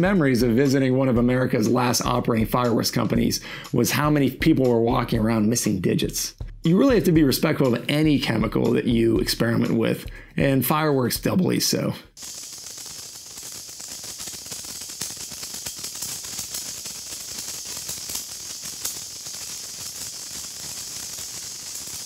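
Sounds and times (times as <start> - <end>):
faint sparkler crackles: 12.2 - 22.0
sparkler fizzing hiss: 12.2 - 22.0.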